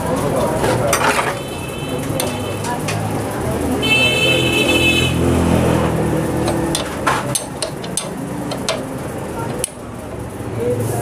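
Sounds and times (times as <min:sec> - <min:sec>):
spanner clicking on axle nut: 0:06.3 - 0:09.8.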